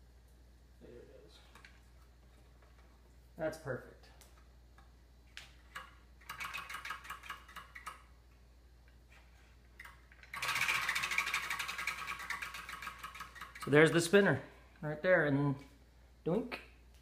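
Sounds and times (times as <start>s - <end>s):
prize wheel flapper clicking: 5.8s - 8.0s, 9.8s - 14.2s.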